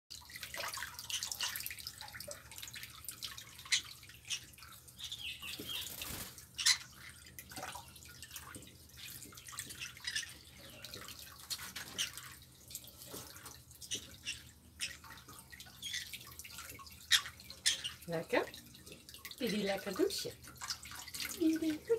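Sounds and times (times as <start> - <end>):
water dripping: 0.1 - 21.9
tap water splashing into metal sink: 6.9 - 21.9.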